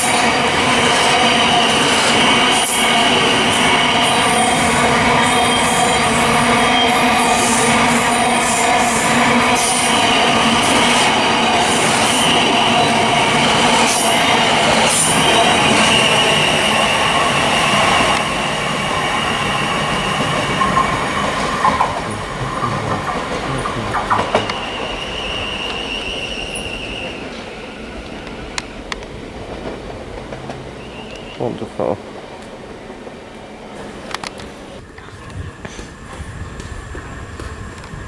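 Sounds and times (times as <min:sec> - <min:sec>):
electric train rumble and whine: 0:00.0 - 0:38.0
high wheel squeal: 0:24.1 - 0:27.6, 0:30.8 - 0:31.5.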